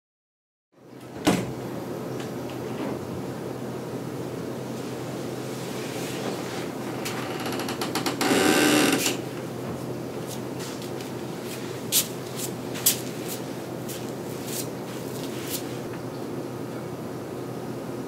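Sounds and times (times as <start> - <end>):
door opening with rattling creak: 1.0 - 1.6, 6.6 - 9.5.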